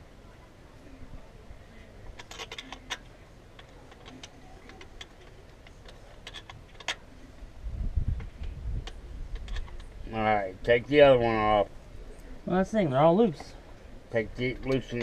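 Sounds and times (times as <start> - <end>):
hand tools clinking on metal bolts: 14.1 - 15.0.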